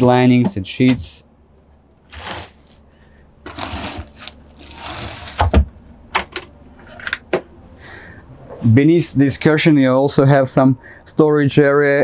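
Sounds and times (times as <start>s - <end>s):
rustling: 2.1s - 5.6s
wooden drawers sliding: 3.5s - 5.7s.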